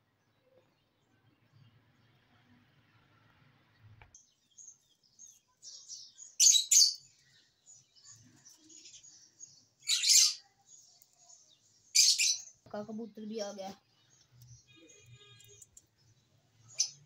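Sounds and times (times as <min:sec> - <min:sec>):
loud shrill bird calls: 0:05.7 - 0:07.1, 0:09.0 - 0:10.6, 0:11.9 - 0:12.6
budgerigars chirping: 0:09.8 - 0:10.4, 0:12.0 - 0:12.5.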